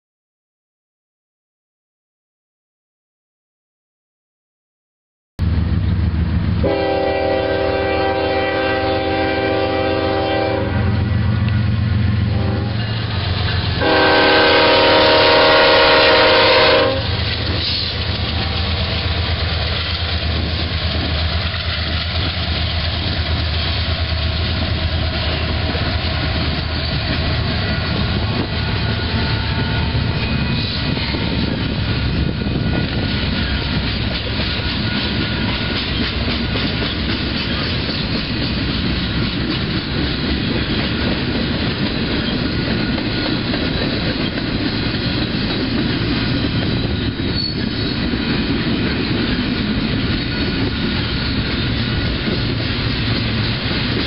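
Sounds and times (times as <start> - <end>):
locomotive horn blasts: 6.6 - 11.2, 12.3 - 13.0, 13.8 - 17.2
freight cars rumbling and clattering: 17.0 - 54.0.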